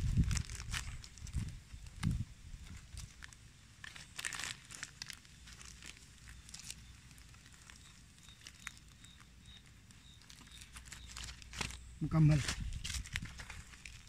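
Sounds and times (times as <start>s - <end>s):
plastic strip crinkling: 0.0s - 14.0s.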